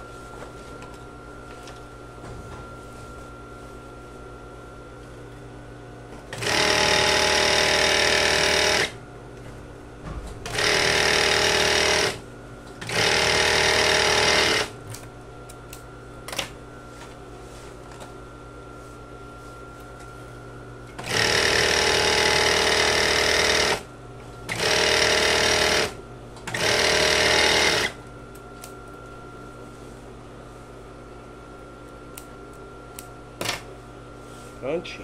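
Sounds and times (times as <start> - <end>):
overlock machine sewing: 6.3 - 9.0, 10.4 - 12.2, 12.8 - 14.7, 21.0 - 23.9, 24.5 - 28.0.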